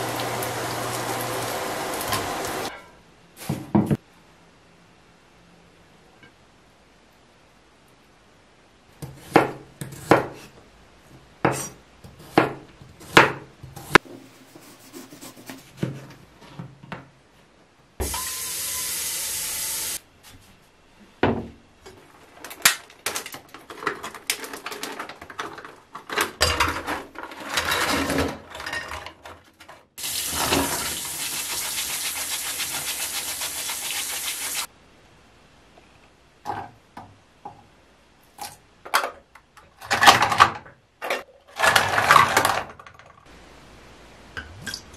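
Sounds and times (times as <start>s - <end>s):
knife chopping on wooden board: 11.4s - 14.0s.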